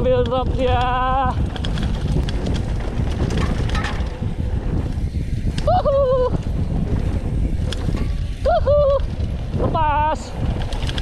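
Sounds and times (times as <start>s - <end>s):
mountain bike rattling on rough trail: 0.0s - 11.0s
wind buffeting microphone: 0.0s - 11.0s.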